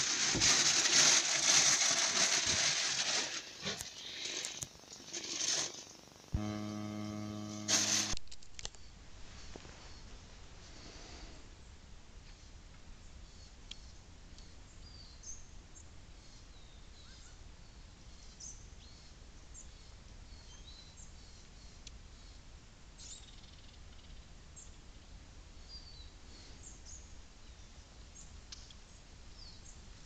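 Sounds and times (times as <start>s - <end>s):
low steady hum: 6.2s - 8.2s.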